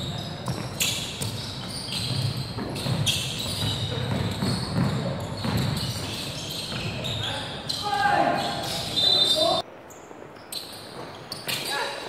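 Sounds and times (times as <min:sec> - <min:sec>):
sneaker squeaks: 0:00.0 - 0:12.0
basketball bouncing on hardwood: 0:00.4 - 0:06.1.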